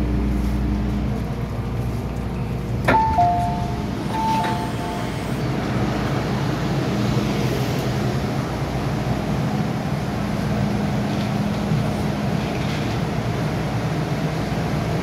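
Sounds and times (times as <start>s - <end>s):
train traction hum and rumble: 0.0s - 15.0s
train door warning chime: 2.9s - 5.5s.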